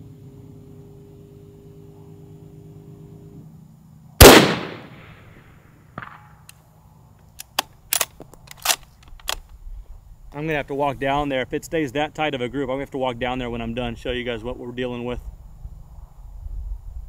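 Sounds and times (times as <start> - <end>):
rifle shot: 4.2 - 6.4
rifle bolt clicking: 7.4 - 9.5.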